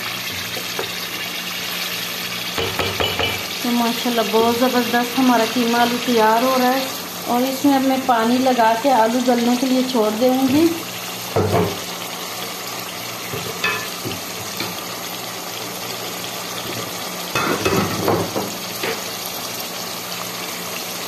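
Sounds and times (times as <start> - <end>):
curry sizzling in a pot: 0.0 - 21.0
knocks against a pot: 2.6 - 3.5, 11.4 - 11.8, 17.4 - 19.0.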